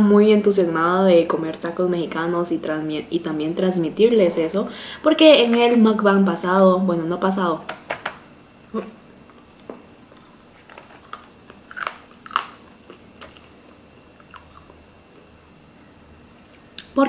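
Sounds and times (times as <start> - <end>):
close chewing with wet mouth clicks: 11.0 - 13.5.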